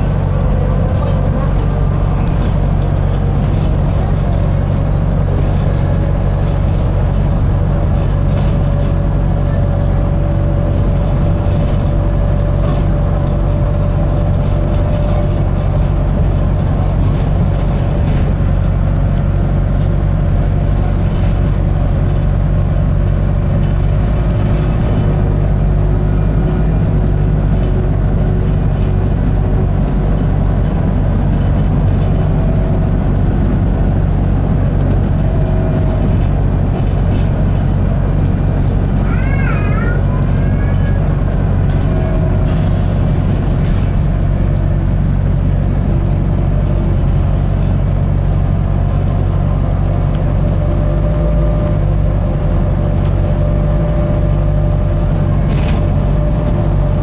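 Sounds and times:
bus drivetrain hum: 0:00.0 - 0:57.0
road noise: 0:00.0 - 0:57.0.

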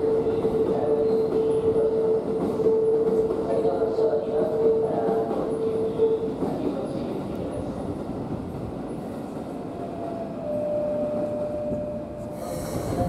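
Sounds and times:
electric train rumbling: 0:00.0 - 0:13.0.

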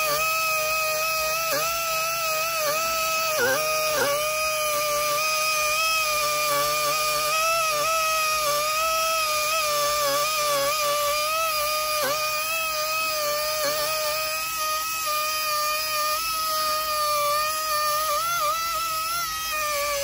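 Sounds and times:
rotary tool high-pitched whine: 0:00.0 - 0:20.0.

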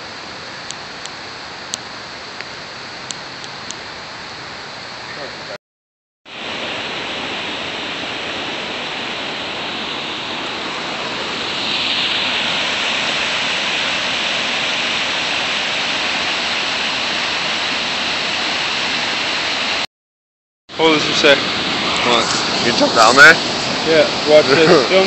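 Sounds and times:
waterfall rushing: 0:06.3 - 0:19.9, 0:20.7 - 0:25.0.

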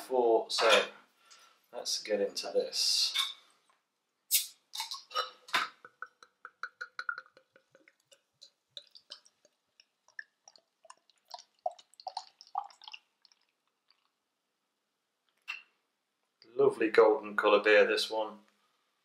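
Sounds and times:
beer pouring into glass: 0:04.8 - 0:13.6.

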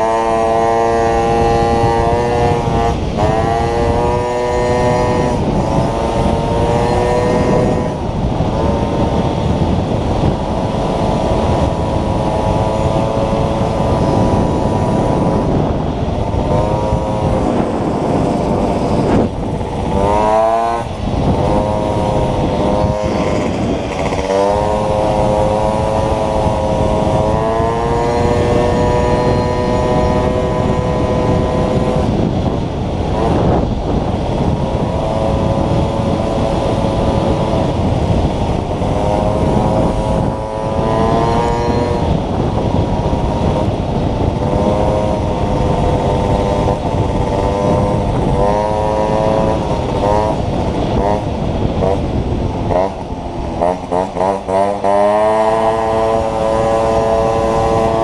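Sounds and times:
small motorcycle engine revving: 0:00.0 - 0:58.0
wind and road noise: 0:00.0 - 0:58.0.

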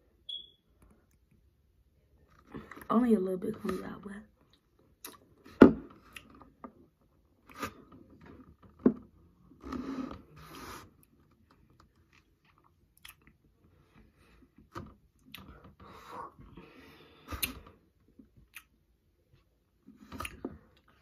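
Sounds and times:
wet mouth smacks and clicks: 0:04.5 - 0:05.2, 0:13.0 - 0:13.4, 0:18.5 - 0:18.7.

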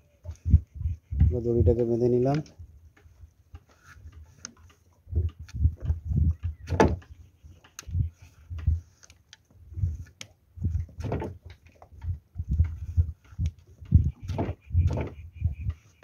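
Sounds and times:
wooden knocks and thumps: 0:02.4 - 0:08.8, 0:09.8 - 0:15.8.

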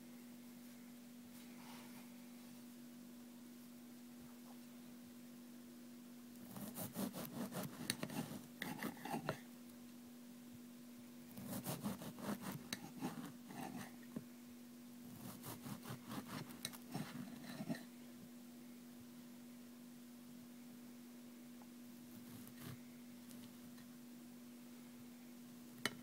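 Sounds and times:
steady hum: 0:00.0 - 0:26.0
bread knife sawing loaf: 0:06.5 - 0:09.3, 0:11.4 - 0:13.9, 0:15.1 - 0:17.7.

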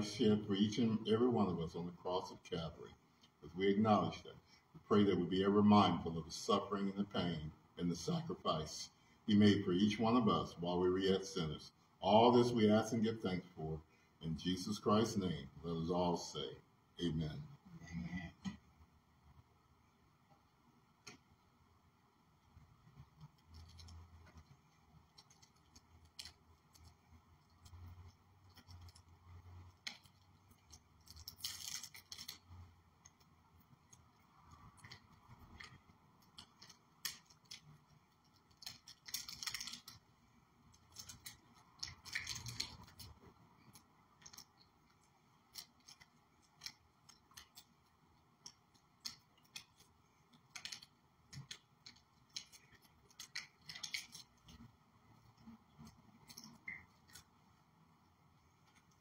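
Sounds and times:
small plastic clicking and crinkling: 0:22.4 - 0:57.6, 0:58.3 - 0:59.0
plastic crackling rustles: 0:22.8 - 0:57.6.

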